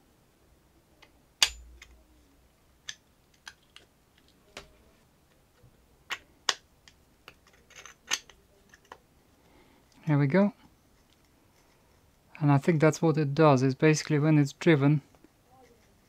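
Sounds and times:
plastic parts clicking and knocking: 0:02.8 - 0:09.0.

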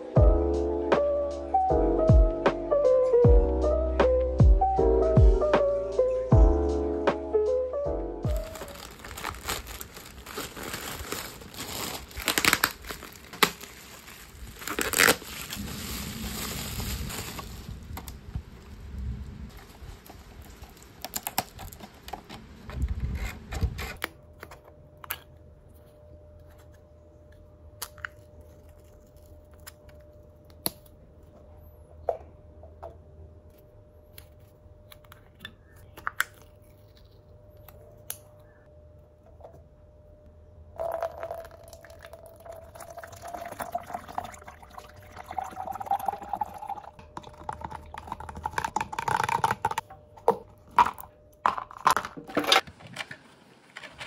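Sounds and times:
plastic packaging crinkling: 0:08.3 - 0:18.2, 0:40.9 - 0:54.0
water pouring into plastic cup: 0:40.8 - 0:49.8.

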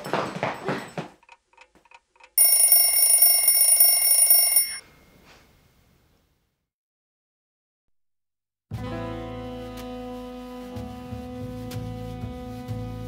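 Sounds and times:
shrill electronic alarm tone: 0:02.4 - 0:04.8.

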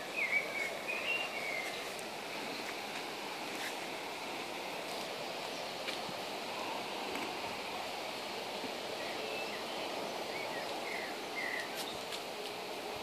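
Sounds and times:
bird chirps: 0:00.0 - 0:02.7, 0:09.0 - 0:12.1
breeze through leaves: 0:00.0 - 0:13.0.

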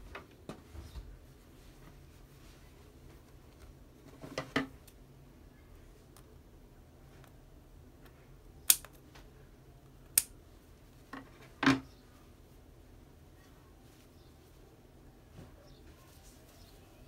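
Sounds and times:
scissors snipping: 0:08.6 - 0:09.0, 0:10.1 - 0:10.3.

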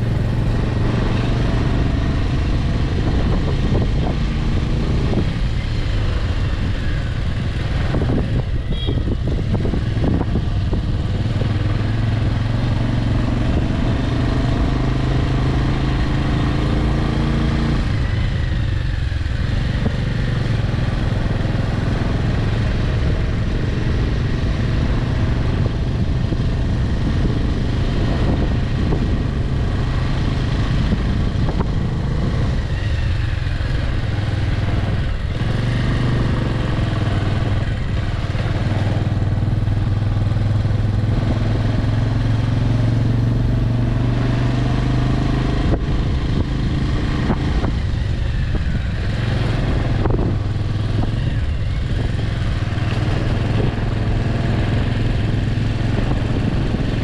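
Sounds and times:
road and wind noise: 0:00.0 - 0:57.0
vehicle engine running: 0:00.0 - 0:57.0.

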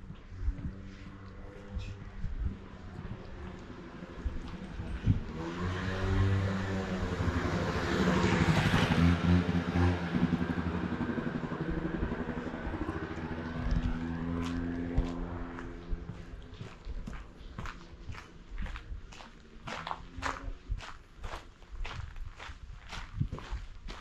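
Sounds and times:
vehicle engine passing by: 0:00.4 - 0:16.8.

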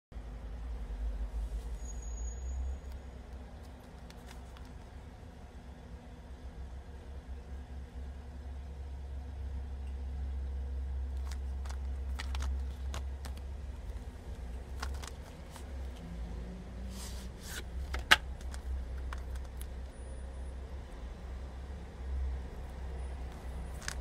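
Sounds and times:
plastic case clicks and rustles: 0:03.6 - 0:04.9, 0:11.2 - 0:16.0, 0:17.4 - 0:19.8, 0:23.3 - 0:24.0
steady low rumble: 0:10.7 - 0:19.9.

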